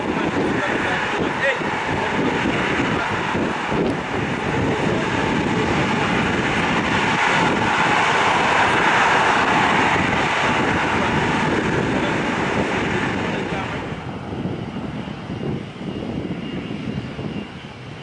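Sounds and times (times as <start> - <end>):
jet engines running: 0.0 - 18.0.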